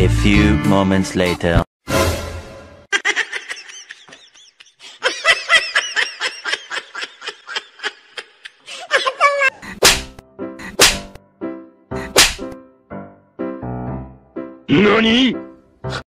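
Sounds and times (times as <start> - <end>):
person laughing: 2.9 - 9.9
loud sharp sound: 12.1 - 12.5.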